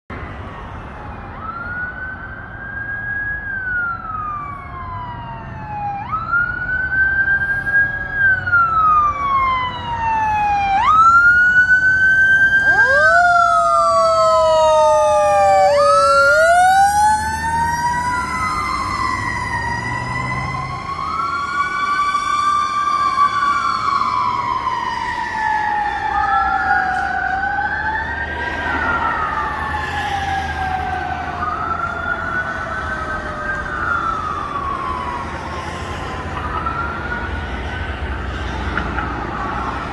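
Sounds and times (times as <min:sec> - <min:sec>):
fire engine siren wailing: 0:00.1 - 0:39.9
second siren tone: 0:12.6 - 0:20.6.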